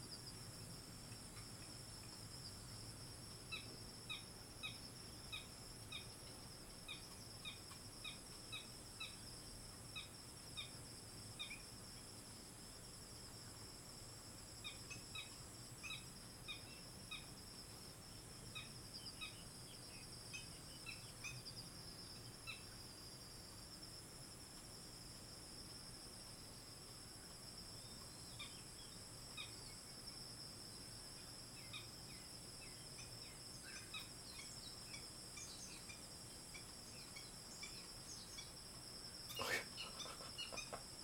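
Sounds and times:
birds peeping: 39.3s - 40.9s
high-pitched insect drone: 39.3s - 41.0s.

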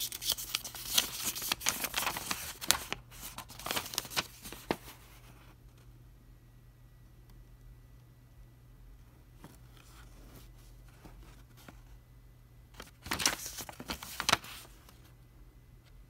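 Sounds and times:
paper crinkling: 0.0s - 5.4s, 12.8s - 15.1s
paper rustling: 0.0s - 5.4s, 12.8s - 15.1s.

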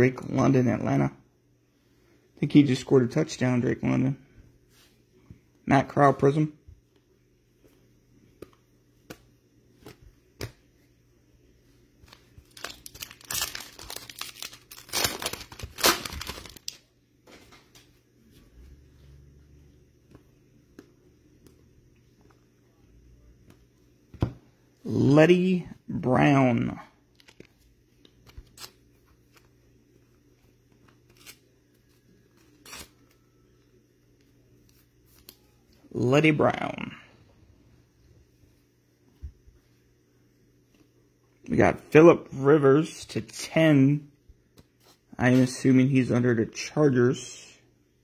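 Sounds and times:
plastic wrapper tearing and crinkling: 12.1s - 16.8s.

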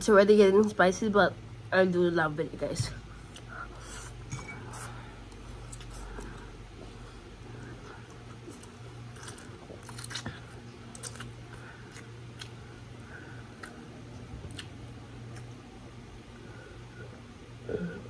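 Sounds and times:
steady low hum: 0.0s - 18.0s
chewing with mouth smacks: 3.2s - 15.7s.

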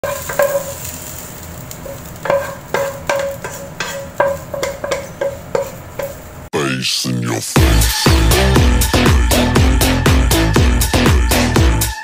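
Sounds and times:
metal spatula scraping a wok: 0.0s - 6.5s.

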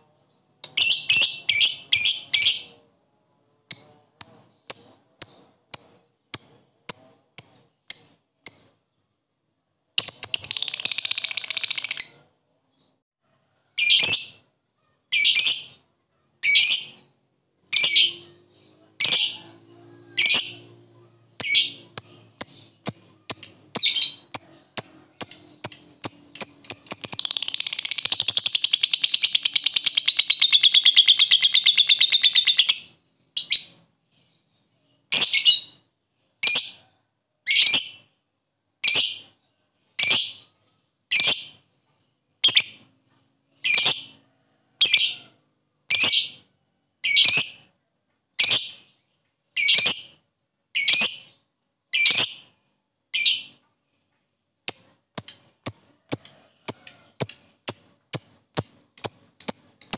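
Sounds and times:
lovebird chattering trill: 21.4s - 33.5s, 54.7s - 59.9s.

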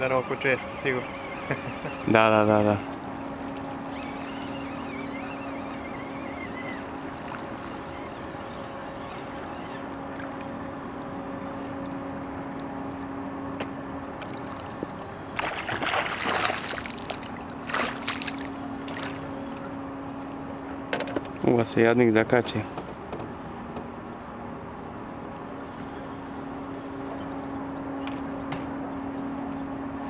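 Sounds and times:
water lapping: 0.0s - 13.1s, 13.8s - 19.8s
boat motor humming: 0.0s - 30.0s
fish splashing at surface: 15.4s - 19.2s.

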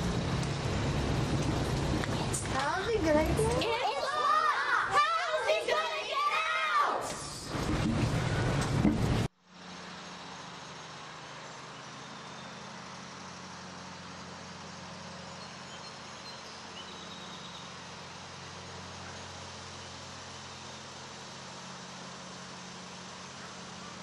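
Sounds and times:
low mechanical hum: 0.0s - 24.0s
children's voices: 2.1s - 7.5s.

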